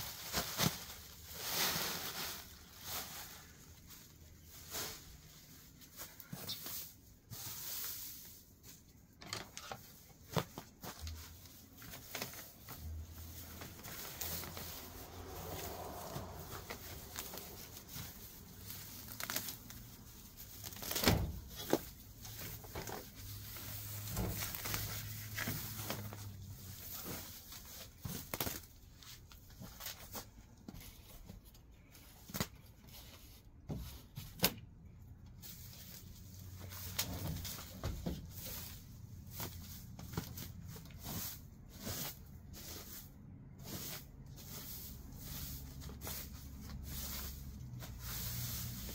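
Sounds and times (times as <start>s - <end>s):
grass rustling and tearing: 11.5s - 29.0s.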